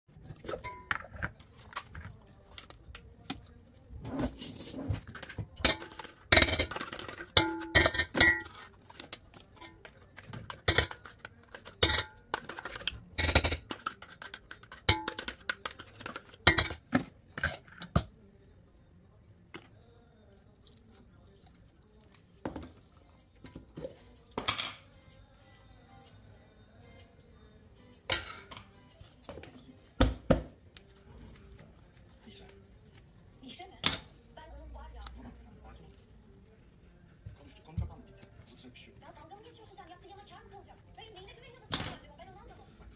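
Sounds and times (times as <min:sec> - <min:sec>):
spoon clinking in metal bowl: 0:00.5 - 0:01.3, 0:05.6 - 0:08.8, 0:09.6 - 0:17.6.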